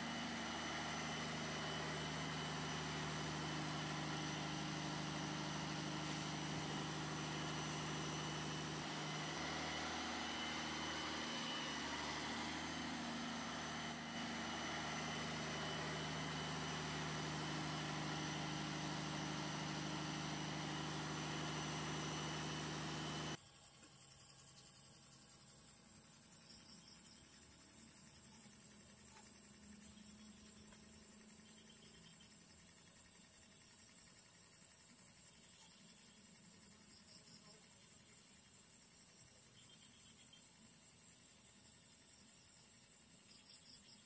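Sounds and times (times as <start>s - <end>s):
model boat motor humming: 0.0s - 23.4s.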